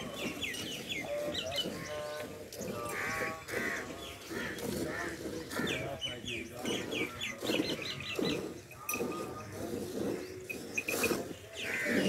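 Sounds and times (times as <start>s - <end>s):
birds chirping: 0.0s - 12.0s
harsh bird calls: 0.0s - 12.0s.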